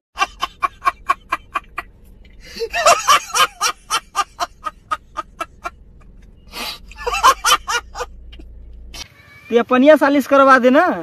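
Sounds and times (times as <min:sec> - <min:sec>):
man laughing hard: 0:00.2 - 0:05.8, 0:06.6 - 0:08.2.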